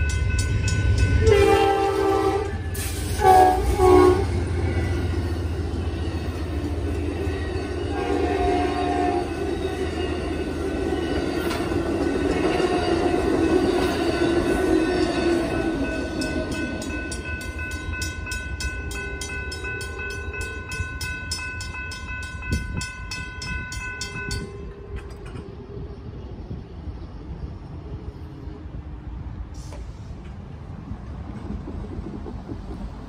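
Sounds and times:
crossing warning bells ringing: 0:00.0 - 0:25.5
train cars rumbling past: 0:00.0 - 0:33.0.

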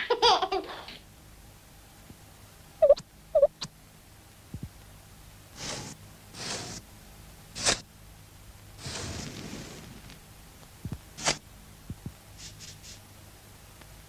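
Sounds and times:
cartoon squeaks: 0:02.8 - 0:03.5.

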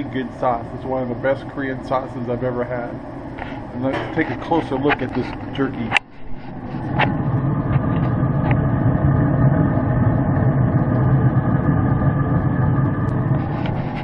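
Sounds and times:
grill fan humming: 0:00.0 - 0:14.0.

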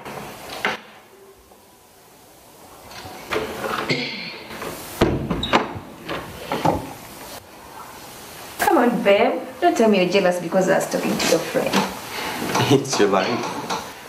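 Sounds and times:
wooden door thudding shut: 0:05.0 - 0:05.9.

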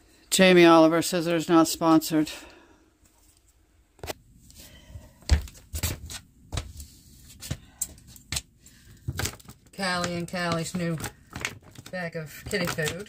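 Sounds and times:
handling knocks and thumps: 0:05.2 - 0:06.8, 0:07.4 - 0:13.0.

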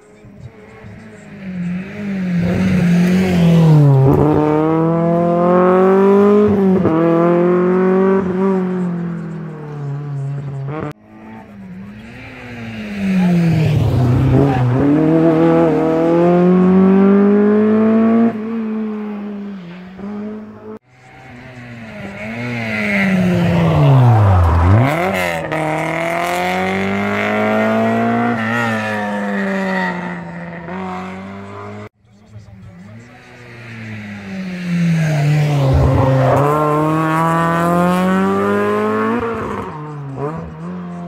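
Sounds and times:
rally cars passing at speed: 0:00.0 - 0:41.0.

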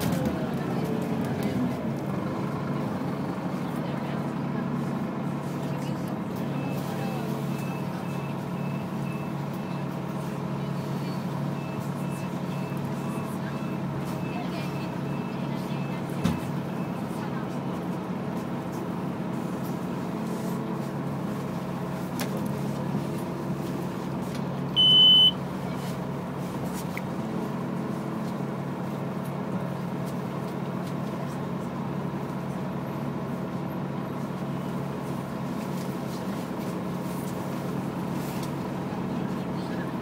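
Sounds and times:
high-pitched beep: 0:24.8 - 0:25.4.

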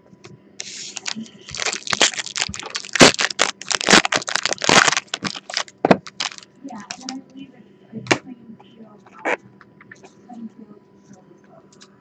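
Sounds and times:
foil wrapper crinkling: 0:00.6 - 0:07.1.

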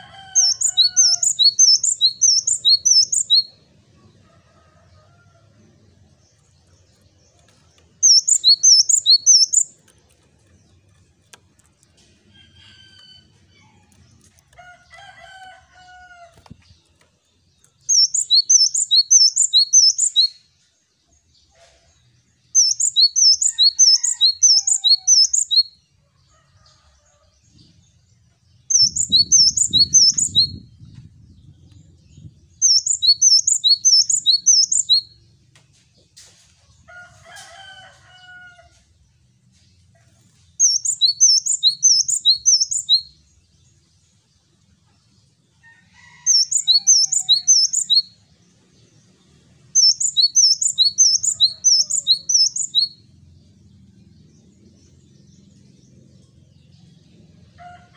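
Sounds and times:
fainter bird chirps: 0:00.1 - 0:03.6, 0:08.0 - 0:09.8, 0:17.8 - 0:20.4, 0:22.6 - 0:25.7, 0:32.6 - 0:35.1, 0:40.6 - 0:43.0, 0:46.1 - 0:48.1, 0:49.8 - 0:52.9
soft low rumble: 0:30.4 - 0:32.6.

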